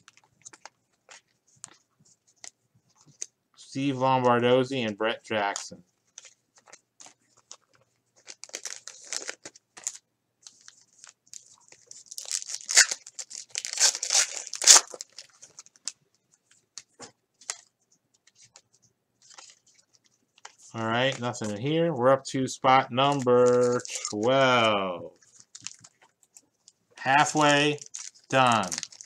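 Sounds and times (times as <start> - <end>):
soft rustles: 0.0 - 3.3
wrapper tearing and crinkling: 6.2 - 16.0, 19.2 - 21.4, 23.0 - 26.1, 27.0 - 29.0.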